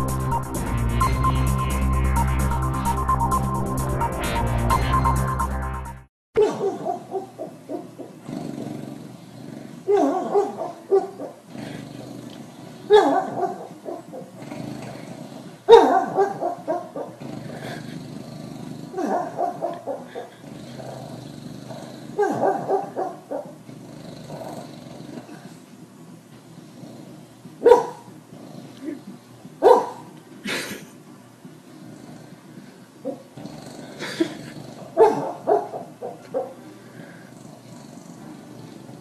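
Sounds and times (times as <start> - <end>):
dog yipping: 6.4 - 7.9, 9.9 - 11.3, 12.9 - 14.2, 15.7 - 17.1, 27.6 - 28.0, 29.6 - 30.0, 35.0 - 36.6
dog growling: 6.4 - 39.0
sleeping dog woofing: 6.4 - 39.0.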